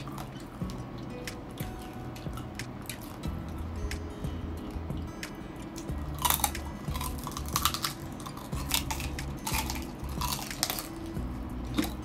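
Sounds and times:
crunchy chewing: 0.0 - 3.2, 5.7 - 12.0.

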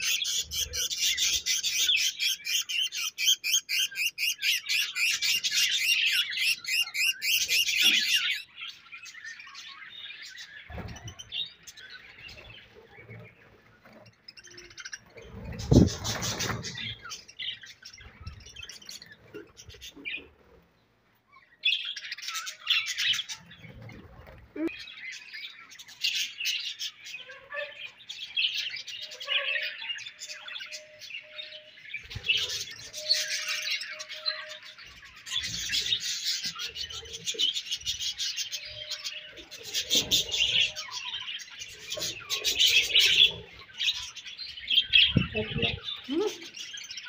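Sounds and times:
budgerigars chattering: 0.0 - 8.6.

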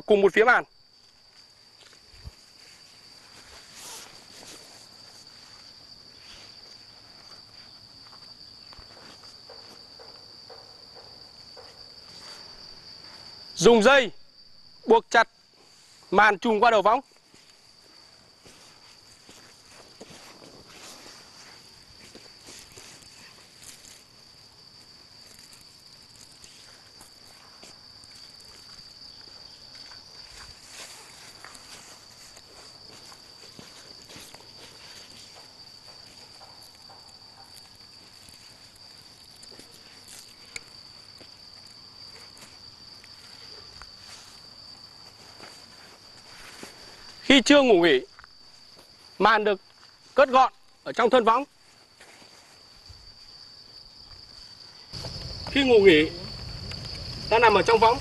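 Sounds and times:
insect high-pitched call: 0.0 - 58.0
canvas and netting rustling: 1.0 - 9.9, 17.2 - 47.3.

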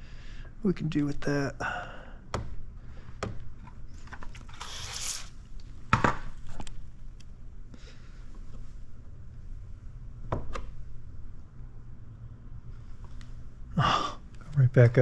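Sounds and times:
brief high hiss: 4.6 - 5.3.

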